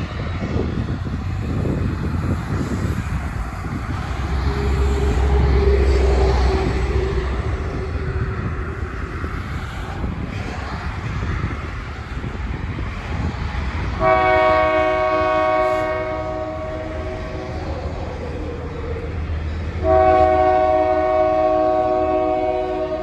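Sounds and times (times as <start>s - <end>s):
diesel locomotive rumbling: 0.0s - 23.0s
train air horn blast: 4.4s - 8.3s, 14.0s - 17.4s, 19.8s - 23.0s.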